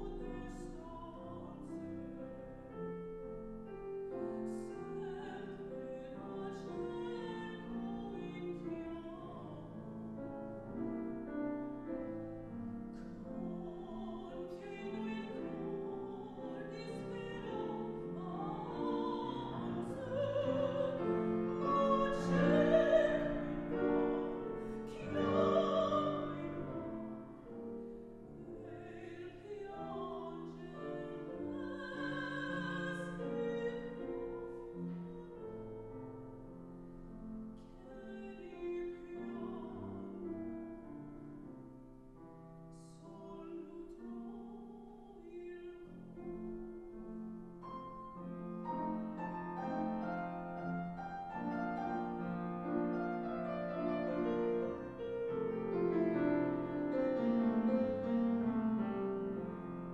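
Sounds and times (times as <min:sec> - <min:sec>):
woman singing operatically: 0:00.0 - 0:02.0, 0:04.3 - 0:09.8, 0:13.1 - 0:27.1, 0:28.4 - 0:35.6, 0:37.8 - 0:40.1, 0:42.8 - 0:46.2
grand piano: 0:00.0 - 0:59.9.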